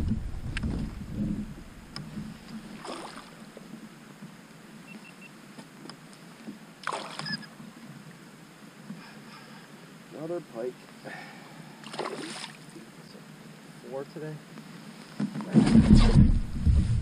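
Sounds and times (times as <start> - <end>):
fish splashing in water: 2.7 - 3.4, 6.8 - 7.3, 11.8 - 12.7.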